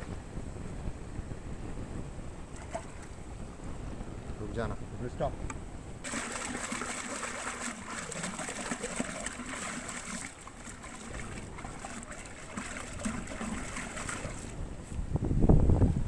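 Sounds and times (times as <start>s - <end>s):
muddy water sloshing in clay pot: 2.6s - 3.2s, 6.0s - 14.8s.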